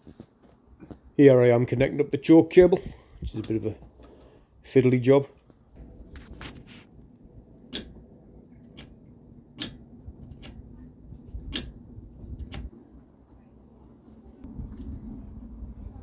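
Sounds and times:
faint low hum: 5.3 - 16.0
sharp clicks: 9.6 - 10.6, 11.5 - 11.8.

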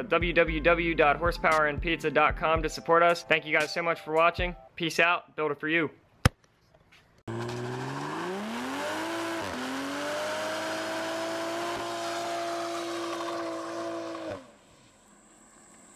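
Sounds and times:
car engine revving: 7.3 - 14.6
spinning tyres hissing: 7.3 - 15.9.

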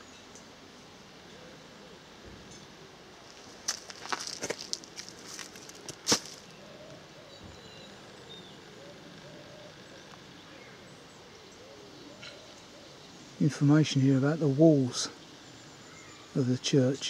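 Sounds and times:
distant bird chirps: 6.4 - 17.0.

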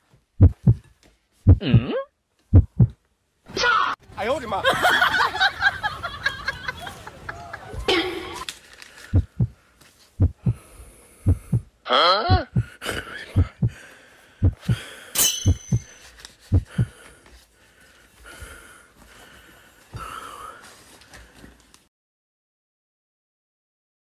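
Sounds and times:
heartbeat thumps: 0.4 - 0.8, 1.4 - 1.9, 2.5 - 3.0, 9.1 - 9.6, 10.2 - 12.8, 13.4 - 13.8, 14.4 - 14.9, 15.5 - 17.0.

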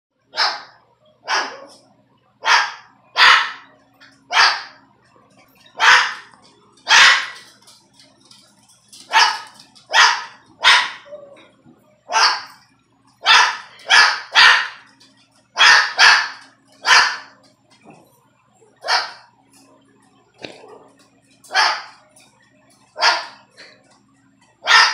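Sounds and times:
small dog barking: 0.3 - 1.8, 2.4 - 4.8, 5.8 - 6.3, 6.9 - 7.4, 9.1 - 11.2, 12.1 - 12.6, 13.2 - 14.9, 15.6 - 17.3, 18.8 - 19.3, 21.5 - 22.0, 23.0 - 23.4, 24.6 - 24.9.

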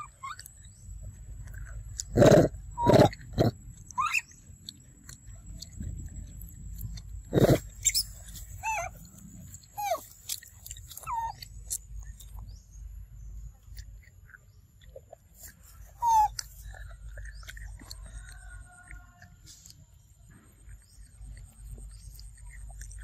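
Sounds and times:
monkey squeaking calls: 0.0 - 0.8, 2.2 - 4.4, 7.4 - 11.8, 15.4 - 16.8
monkey harsh call: 4.0 - 4.3, 7.4 - 8.9, 16.0 - 16.4.

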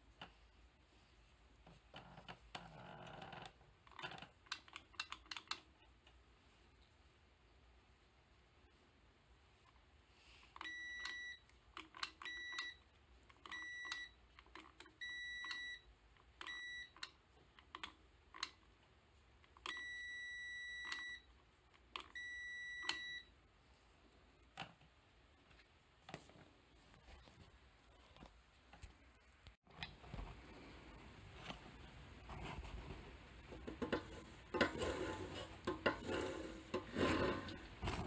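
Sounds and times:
multimeter continuity beeps: 10.6 - 14.2, 14.9 - 17.2, 19.6 - 21.3, 22.0 - 23.3.

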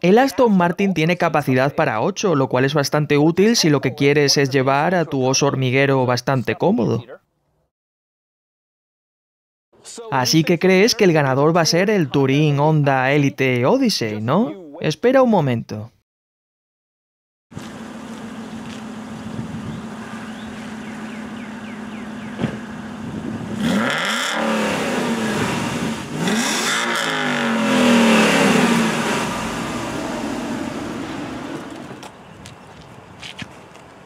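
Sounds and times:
car engine idling and revving: 17.6 - 32.2.

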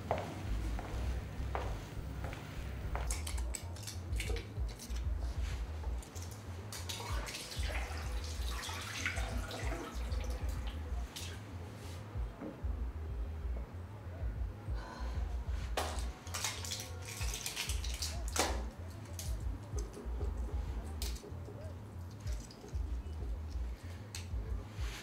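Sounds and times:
steady low rumble: 0.0 - 3.5, 4.1 - 6.0, 10.1 - 11.1, 12.2 - 16.2, 19.3 - 21.2, 21.8 - 25.0
water splashing and dripping: 6.0 - 11.4, 15.8 - 19.4.

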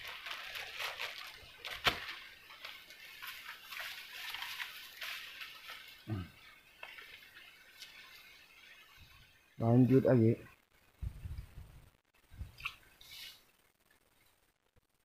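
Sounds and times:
low grunt-like sound: 6.1 - 6.4.

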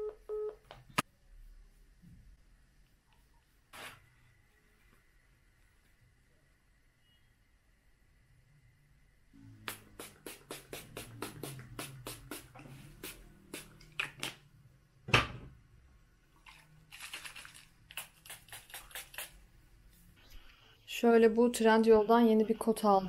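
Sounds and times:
spray bottle hissing: 9.7 - 13.9, 17.9 - 19.4.

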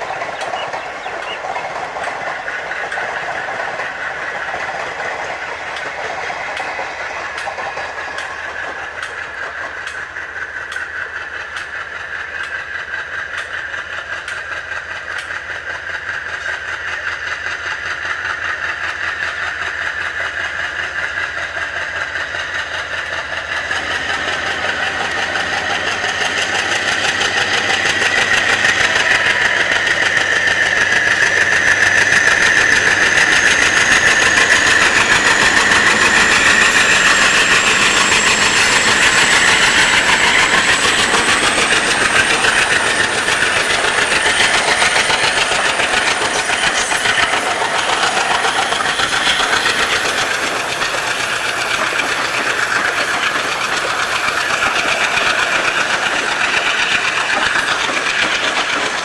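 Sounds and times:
diesel locomotive working hard: 0.0 - 59.0
train wheels clattering: 0.0 - 59.0.

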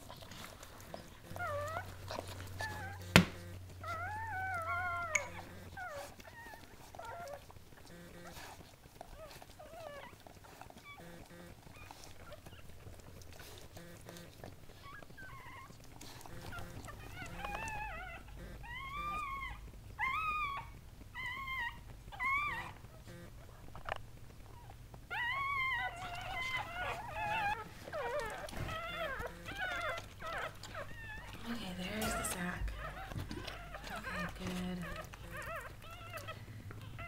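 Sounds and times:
dog whimpering: 0.0 - 37.0.

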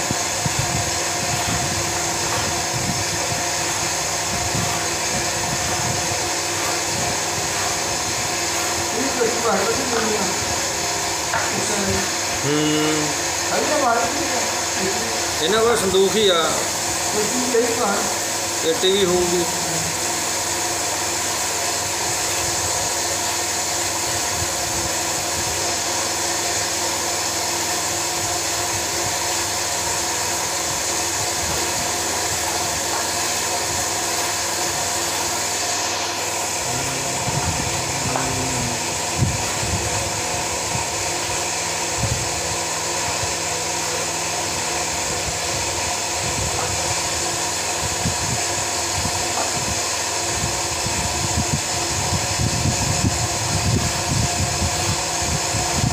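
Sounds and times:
mechanical whir and hum: 0.0 - 55.9.

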